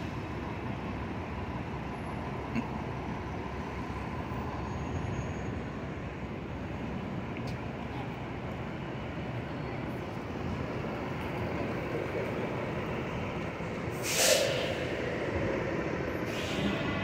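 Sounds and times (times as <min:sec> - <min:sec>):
city street traffic: 0:00.0 - 0:17.0
short sharp hiss: 0:14.0 - 0:14.8.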